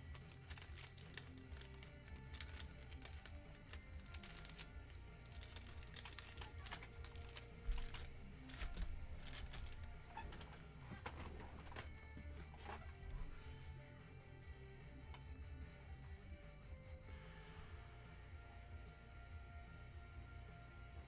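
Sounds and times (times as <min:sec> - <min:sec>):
faint background music: 0:00.0 - 0:21.0
rustling: 0:00.1 - 0:13.7.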